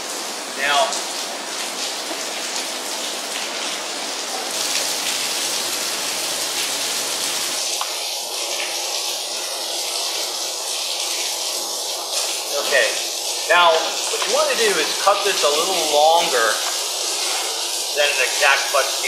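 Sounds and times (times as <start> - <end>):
steady background hiss: 12.1 - 19.0.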